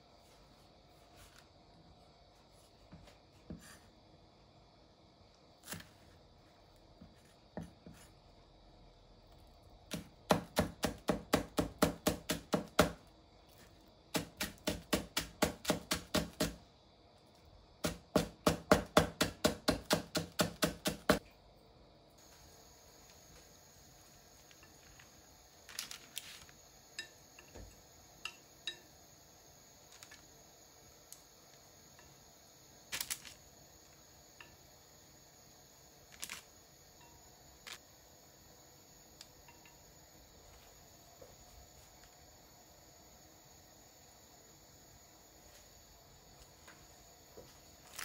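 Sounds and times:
knife chopping on wooden board: 9.9s - 13.0s, 14.2s - 16.6s, 17.8s - 21.2s.

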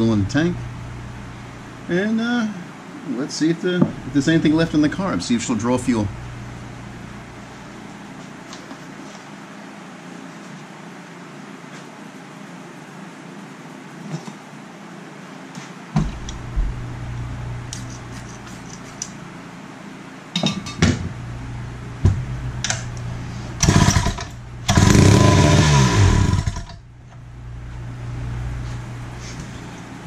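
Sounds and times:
recoil starter pulls: 23.6s - 26.8s
two-stroke engine running: 23.6s - 26.8s.

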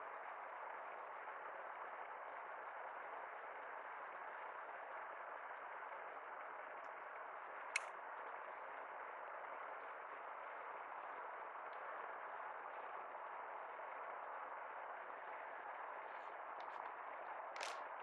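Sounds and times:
sharp click: 7.7s - 8.0s.

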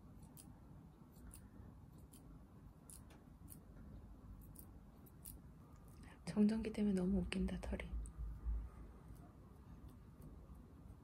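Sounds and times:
scissors snipping hair: 0.2s - 2.3s, 2.9s - 3.7s, 4.4s - 6.0s.

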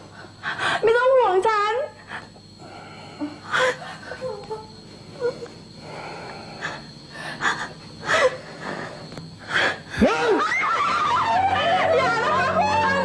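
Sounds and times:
music: 11.0s - 13.0s.

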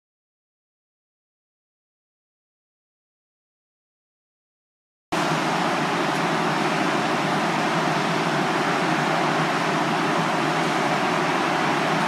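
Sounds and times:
train air-conditioning whooshing hum: 5.2s - 12.0s.

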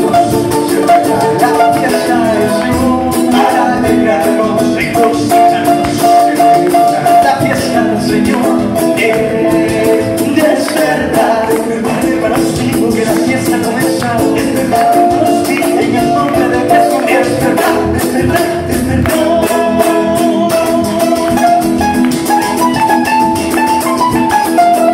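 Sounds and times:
voices singing held notes: 0.0s - 22.7s
acoustic guitars strummed: 0.0s - 24.9s.

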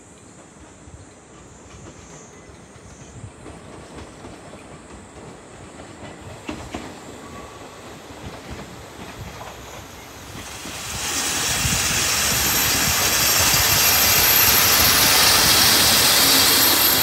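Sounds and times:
diesel railcar rumble: 8.5s - 17.0s.

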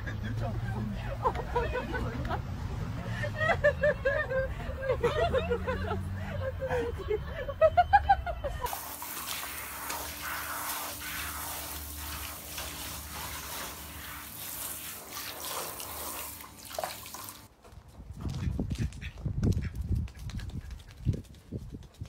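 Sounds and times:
water spraying from shower head: 8.7s - 17.5s.

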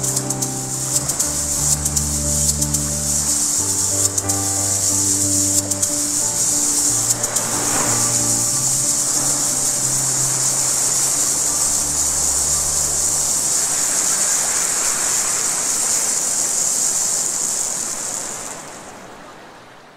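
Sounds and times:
held low musical notes: 0.0s - 13.9s
high hissing rush: 0.0s - 19.3s.

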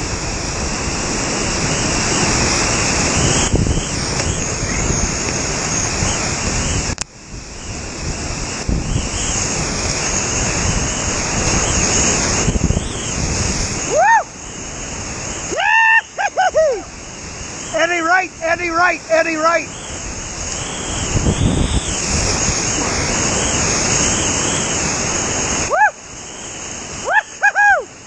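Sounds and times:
whitewater rapids rushing: 0.0s - 28.0s
person whooping: 13.8s - 14.3s, 15.5s - 16.9s, 25.6s - 26.0s, 27.0s - 28.0s.

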